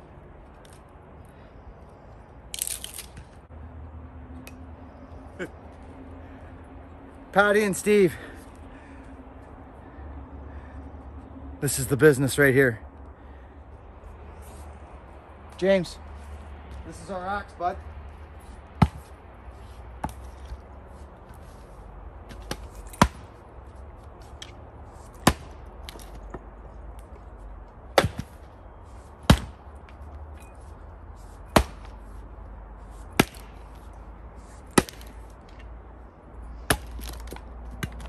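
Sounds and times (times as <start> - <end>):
axe splitting firewood: 22.3 - 23.3, 25.1 - 26.2, 27.9 - 28.5, 29.2 - 30.0, 31.4 - 32.0, 33.1 - 33.8, 34.6 - 35.5, 36.5 - 38.0.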